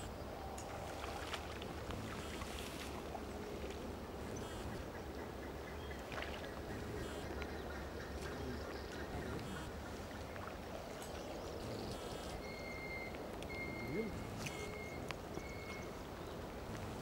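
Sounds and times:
faint bird calls: 4.2s - 10.5s, 11.1s - 17.0s.

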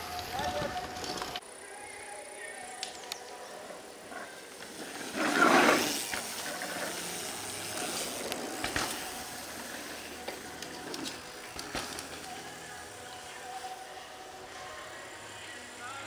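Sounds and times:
bike tyres skidding through dirt: 4.0s - 14.0s
bike landing thump: 8.6s - 9.2s, 11.0s - 12.3s.

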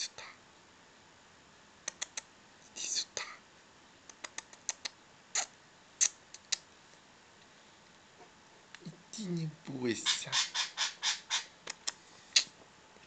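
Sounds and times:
sharp little clicks and taps: 1.8s - 2.3s, 4.1s - 6.7s, 11.6s - 12.5s.

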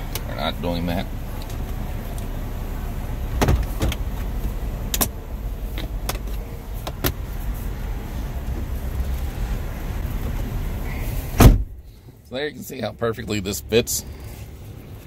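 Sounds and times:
low rumble: 0.0s - 12.0s.

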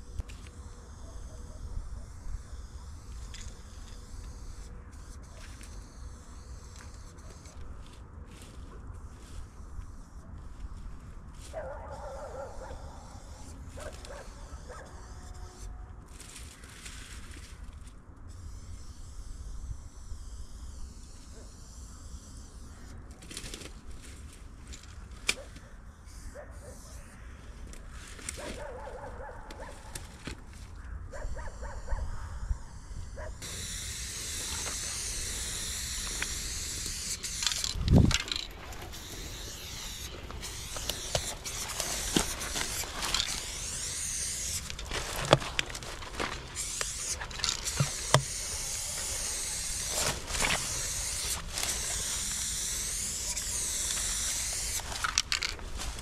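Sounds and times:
spray paint can hissing: 31.4s - 56.0s
sharp clicks: 33.4s - 56.0s.

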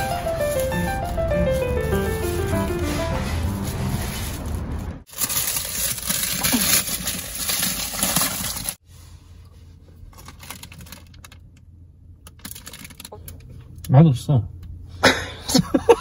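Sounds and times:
plastic snack bag crinkling: 0.0s - 8.8s, 10.2s - 11.4s, 12.4s - 13.1s.

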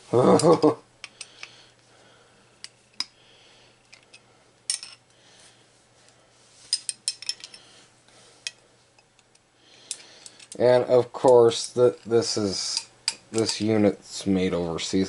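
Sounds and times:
faint steady hum: 0.0s - 15.0s
hand tools clinking: 3.9s - 5.0s, 6.7s - 7.6s, 9.9s - 13.8s.

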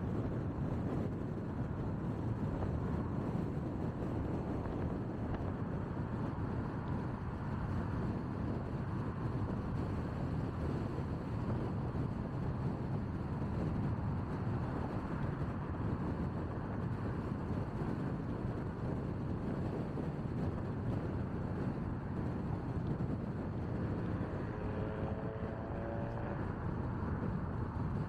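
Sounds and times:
car road noise at speed: 0.0s - 28.0s.

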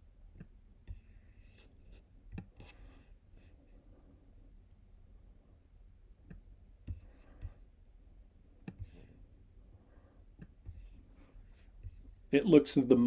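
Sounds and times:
low steady hum: 0.0s - 13.0s
mouse sliding on desk: 8.6s - 9.2s, 10.4s - 12.2s.

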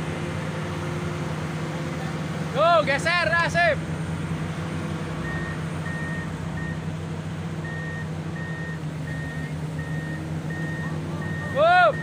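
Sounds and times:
heavy diesel equipment running: 0.0s - 12.0s
warning alarm beeping: 7.6s - 12.0s.

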